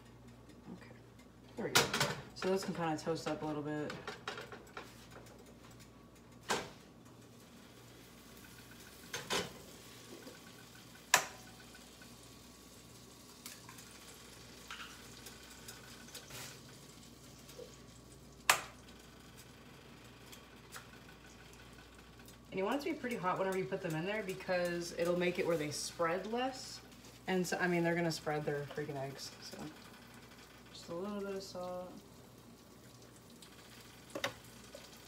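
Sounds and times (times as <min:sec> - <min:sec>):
butter and bread sizzling: 0:01.6 - 0:35.0
eggs cracked against skillet: 0:08.2 - 0:12.2, 0:13.3 - 0:19.5.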